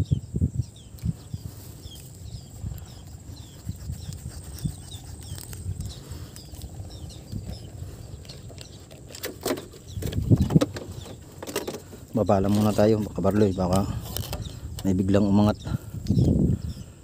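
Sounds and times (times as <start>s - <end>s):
knocks and rustles of gear: 7.4s - 13.5s.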